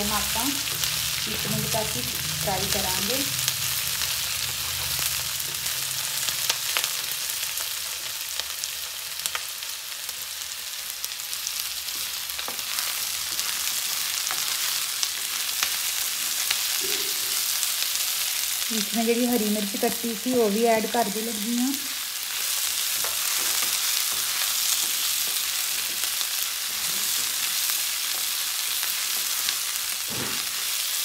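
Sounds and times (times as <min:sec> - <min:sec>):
vegetables sizzling in hot oil: 0:00.0 - 0:31.0.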